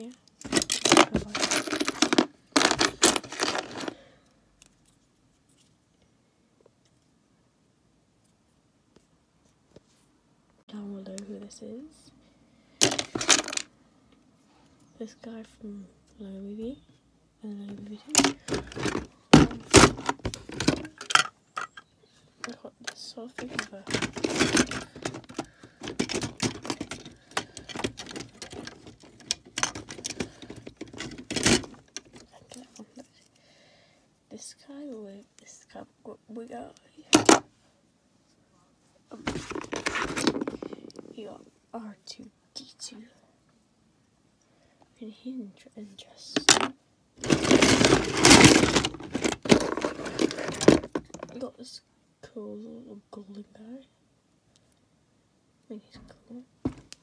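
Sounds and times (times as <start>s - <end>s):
plastic bricks clattering: 0.4s - 4.0s, 12.8s - 13.7s, 18.1s - 21.8s, 23.3s - 32.3s, 39.2s - 41.1s, 46.4s - 51.4s.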